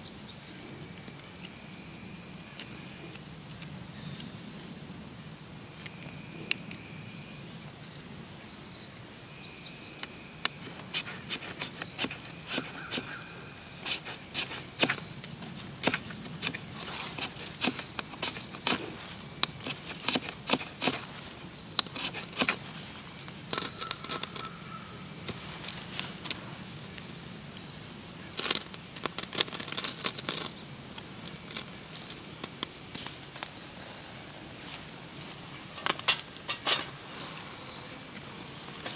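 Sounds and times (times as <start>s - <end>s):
crickets chirring: 0.0s - 38.9s
knife scraping wood: 10.7s - 13.2s, 13.8s - 15.0s, 15.8s - 21.2s, 21.8s - 22.6s.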